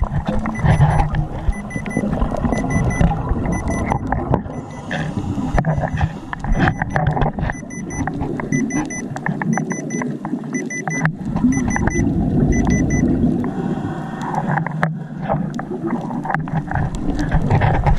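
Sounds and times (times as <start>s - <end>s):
underwater water noise: 0.0s - 17.9s
short high electronic beeps: 0.6s - 4.8s, 6.5s - 10.0s, 10.6s - 13.0s.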